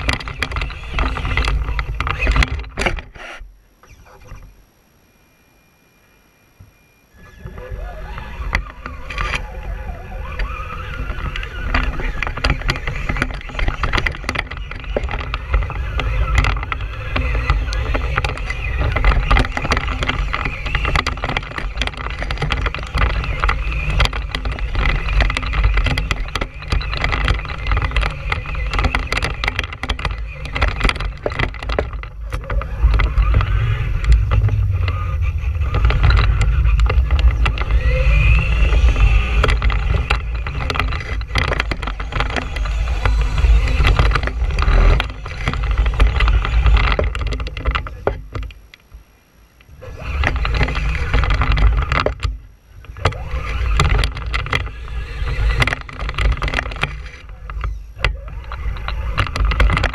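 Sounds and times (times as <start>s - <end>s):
knocks and rattles: 0.0s - 4.5s, 7.4s - 49.0s, 49.7s - 59.9s
toy truck motor whine: 0.0s - 48.6s, 49.6s - 59.9s
wind buffeting on microphone: 7.2s - 49.0s.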